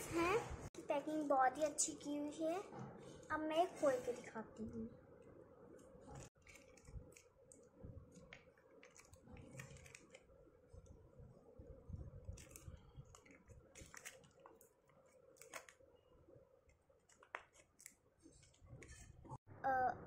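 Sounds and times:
plastic pouch crinkling: 0:06.2 - 0:10.3, 0:12.2 - 0:15.9.

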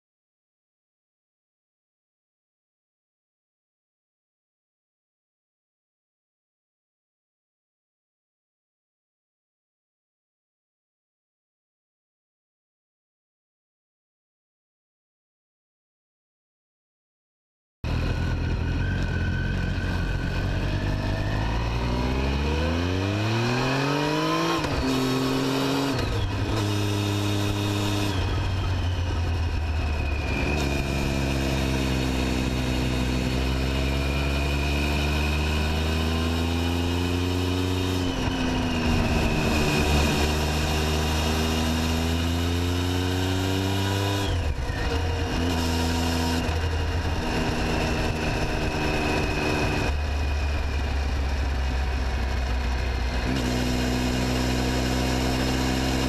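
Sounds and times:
motorcycle engine and exhaust: 0:17.8 - 0:56.0.

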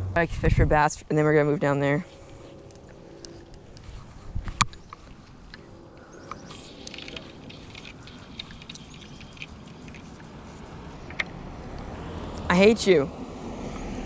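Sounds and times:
fishing rod handling noise: 0:02.2 - 0:11.4.

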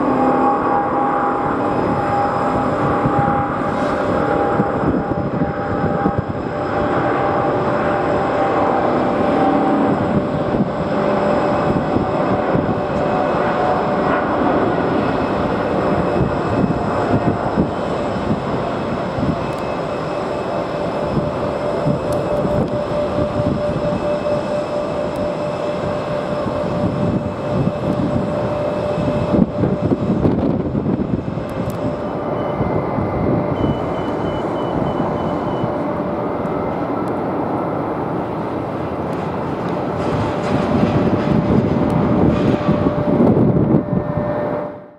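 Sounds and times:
jet engines at takeoff: 0:00.0 - 0:44.9.

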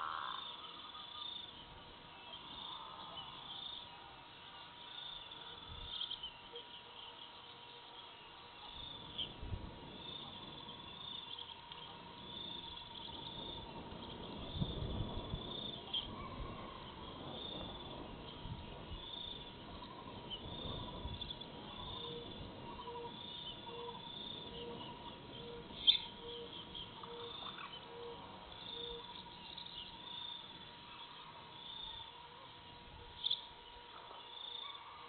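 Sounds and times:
bird hooting: 0:19.8 - 0:29.4.

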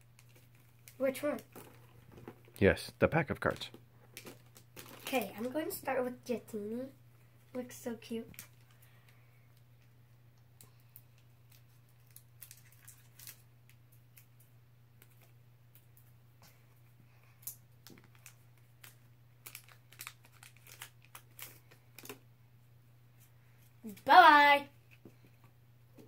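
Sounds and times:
foil wrapper crinkling and tearing: 0:03.4 - 0:05.6, 0:11.5 - 0:14.3, 0:17.4 - 0:22.2.

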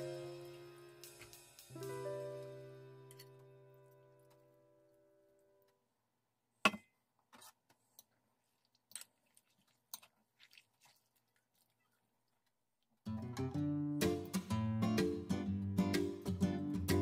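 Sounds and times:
vegetables rustling wetly in brine: 0:08.2 - 0:13.0.

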